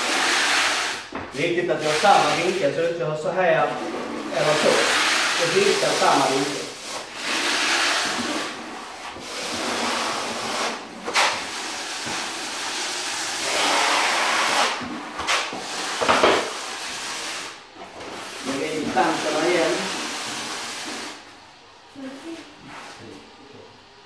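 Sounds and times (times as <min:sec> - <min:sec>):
trowel scraping adhesive on concrete: 0:01.8 - 0:02.7, 0:03.7 - 0:17.6, 0:18.3 - 0:21.2.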